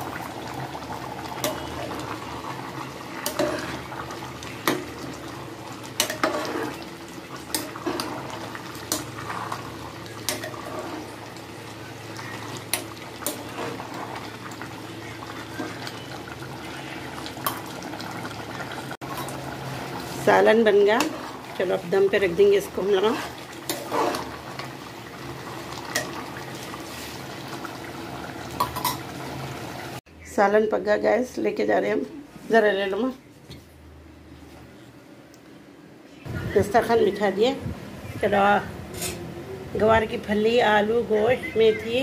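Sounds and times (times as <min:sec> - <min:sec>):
ladle stirring: 0:00.0 - 0:27.6
stew bubbling and boiling: 0:00.0 - 0:30.1.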